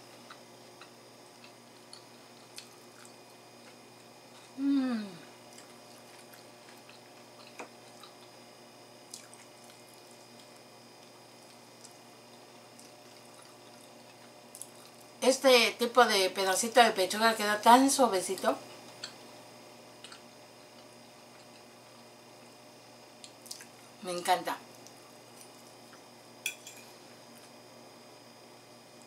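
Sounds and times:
soft chewing: 0.0 - 4.6, 5.3 - 15.1, 20.0 - 22.2, 23.2 - 23.8, 24.7 - 26.2
person humming: 4.6 - 5.3.

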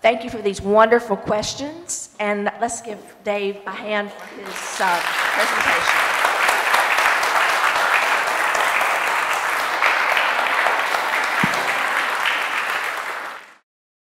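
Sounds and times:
audience applauding: 4.2 - 13.6.

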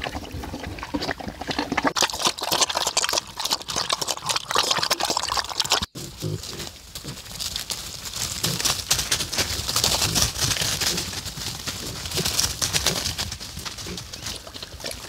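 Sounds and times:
dry leaves rustling and crackling: 6.0 - 15.0.

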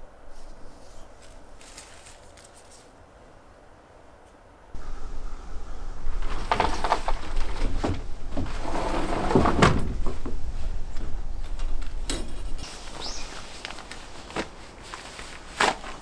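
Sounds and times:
sliding glass door rolling open: 6.0 - 10.5.

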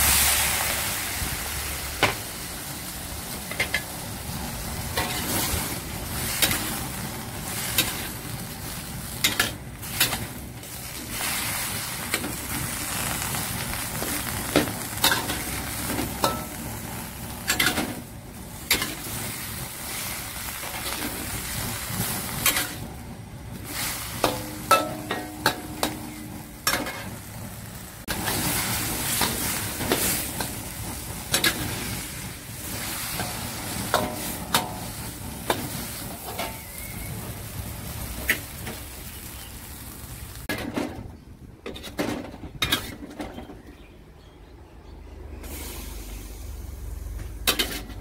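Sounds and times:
food sizzling in a wok: 0.0 - 40.5, 45.5 - 48.0
metal spatula scraping wok: 3.3 - 13.2, 14.0 - 23.0, 23.6 - 27.3, 28.1 - 38.9, 41.7 - 43.4, 47.3 - 48.0
wok ringing: 14.3 - 18.0, 24.1 - 27.2, 33.1 - 37.3.

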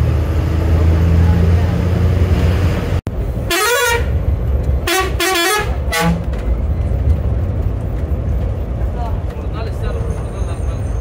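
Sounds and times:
bus engine low rumble: 0.0 - 11.0
bus horn toots: 3.4 - 4.2, 4.8 - 6.4.

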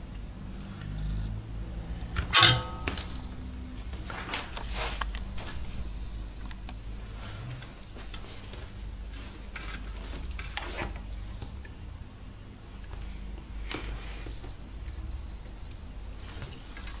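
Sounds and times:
steady low hum: 0.0 - 17.0
wire scraping rustles: 7.5 - 11.1.

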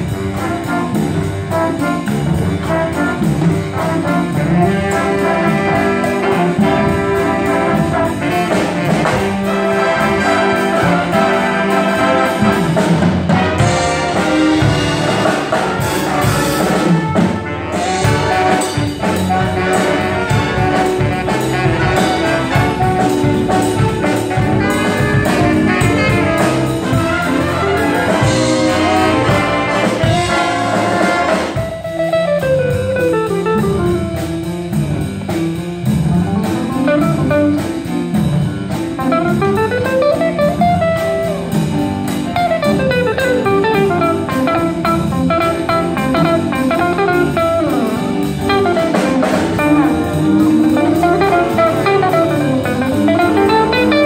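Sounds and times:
jazz big band playing: 0.0 - 54.0.

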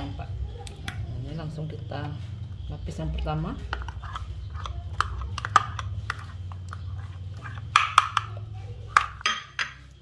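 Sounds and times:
utensil scraping glass bowl: 3.6 - 9.2.

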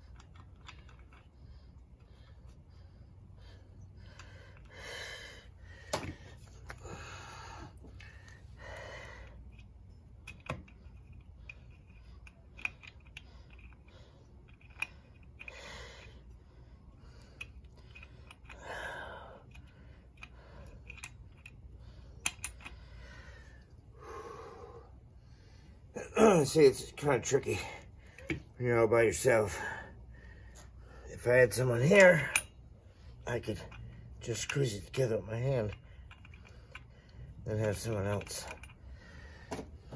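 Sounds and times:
man breathing with strain: 0.0 - 28.6, 29.4 - 31.2, 35.7 - 37.4, 38.4 - 39.9
metallic clicks and taps: 19.5 - 21.6, 22.2 - 22.8.

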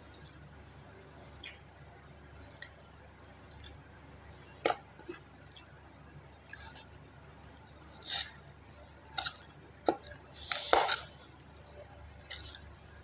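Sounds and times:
soft chewing: 0.0 - 1.8, 2.4 - 13.0
metal spoon scraping in rice: 8.0 - 11.2.

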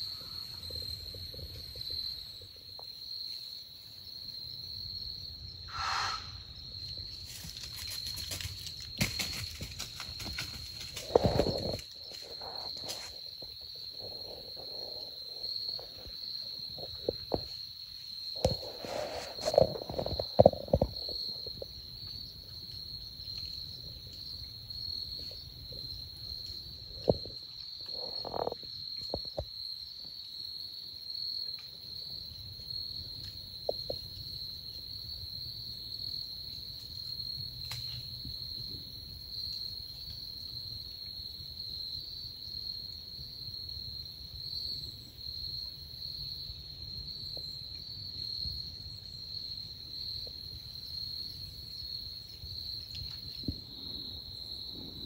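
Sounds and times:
insects chorus: 0.0 - 55.0.

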